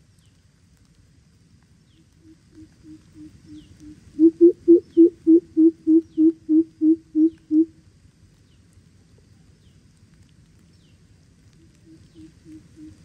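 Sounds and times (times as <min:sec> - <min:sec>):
bird hooting call: 0:02.2 - 0:07.7, 0:11.6 - 0:13.0.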